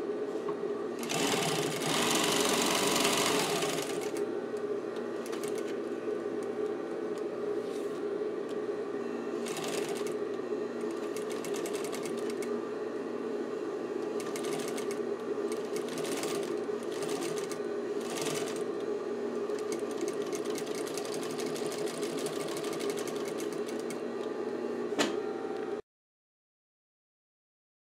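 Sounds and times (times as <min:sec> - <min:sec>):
industrial sewing machine stitching: 0:01.0 - 0:04.2, 0:05.2 - 0:05.8, 0:09.4 - 0:10.2, 0:10.8 - 0:12.5, 0:14.2 - 0:18.7, 0:19.4 - 0:24.0.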